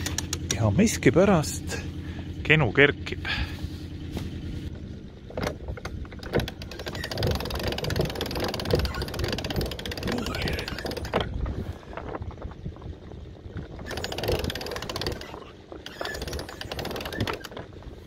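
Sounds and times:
winch clicking: 5.8s - 11.3s, 13.8s - 17.7s
wind rumble on microphone: 7.0s - 18.0s.

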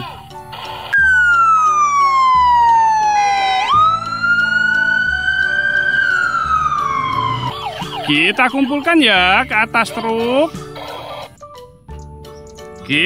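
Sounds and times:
police siren wailing: 0.0s - 9.1s.

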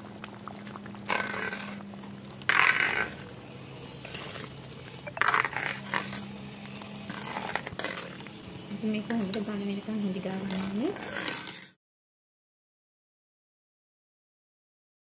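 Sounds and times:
steady low hum: 0.0s - 11.7s
thick jam boiling in metal pot: 0.0s - 11.8s
metal spoon stirring: 1.0s - 11.8s.

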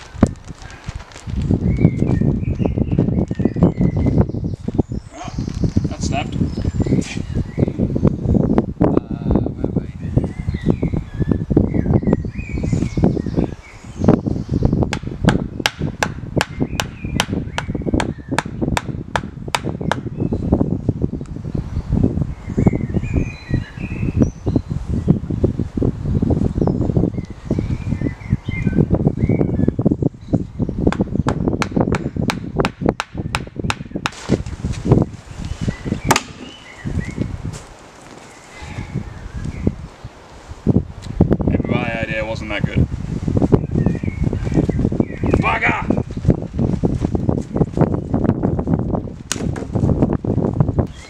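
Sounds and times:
birds chirping: 0.0s - 25.2s, 26.1s - 34.1s, 34.8s - 39.9s, 43.4s - 46.4s
sharp chopping strikes on wood: 14.9s - 20.1s, 30.9s - 34.2s, 36.1s - 36.6s, 49.3s - 49.6s
hand tool striking wood: 36.1s - 36.6s.

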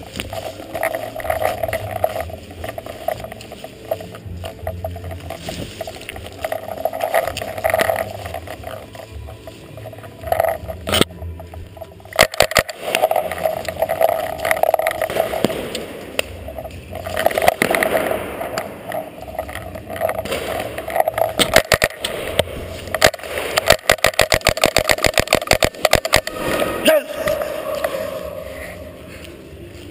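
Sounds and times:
rumbling movement noise: 0.0s - 29.9s
paintball markers firing: 12.1s - 26.4s.

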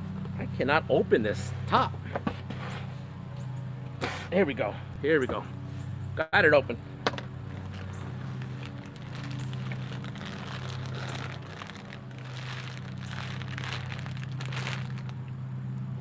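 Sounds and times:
plastic sleeves crinkling: 7.5s - 15.3s.

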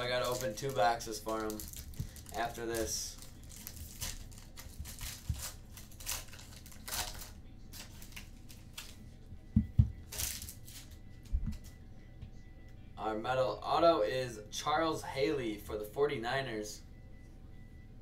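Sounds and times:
card packs crinkling: 0.0s - 9.0s, 10.1s - 11.0s.

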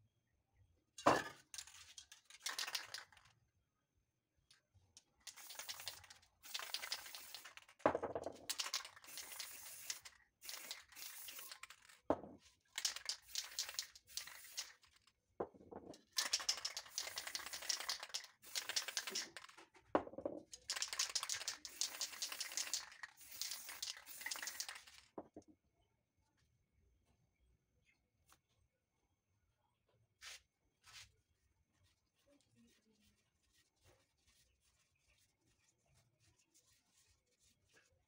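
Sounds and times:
spray paint cans hissing: 1.7s - 3.3s, 5.3s - 12.0s, 12.8s - 15.0s, 16.1s - 19.6s, 20.6s - 25.1s.

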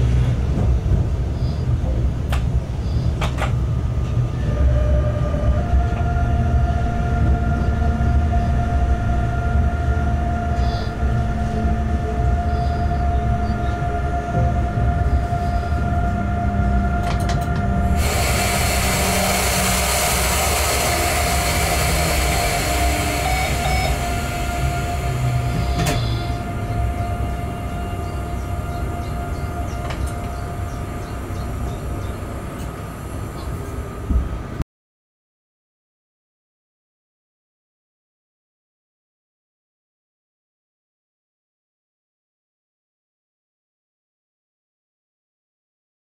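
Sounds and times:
wheels rumbling on rail: 0.0s - 34.6s
whining tones: 3.8s - 34.2s
loud hiss: 18.0s - 26.4s.

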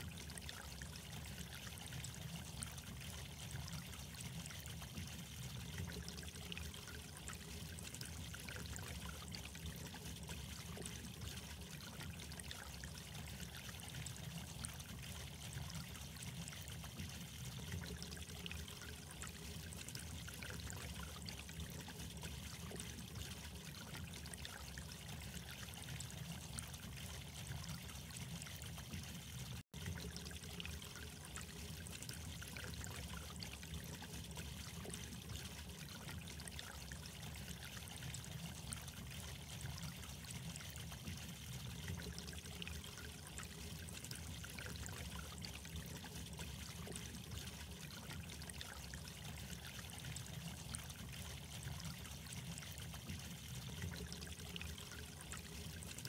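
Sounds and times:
trickling running water: 0.0s - 56.0s.

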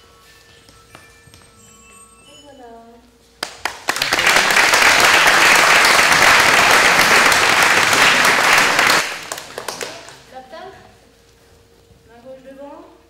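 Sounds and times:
group applauding: 3.4s - 10.4s.

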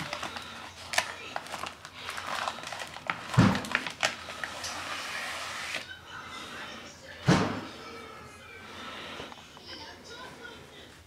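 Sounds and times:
paper and plastic sleeve rustling: 0.0s - 5.9s.

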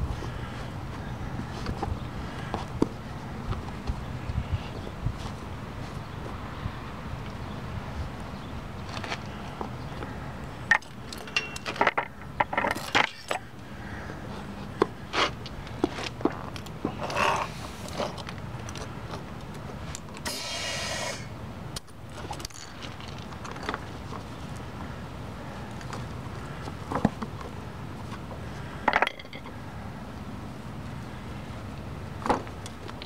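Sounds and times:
metal clicks and rattles: 10.7s - 13.4s
compressed air hissing: 20.2s - 21.3s.

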